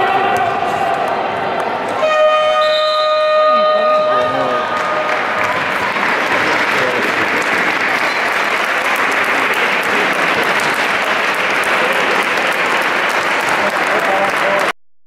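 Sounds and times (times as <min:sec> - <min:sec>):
applause: 0:04.6 - 0:14.8.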